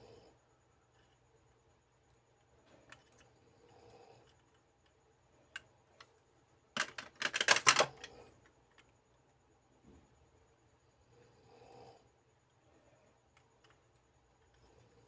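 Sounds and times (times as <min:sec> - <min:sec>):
plastic capsule toys clicking: 0:06.8 - 0:08.9.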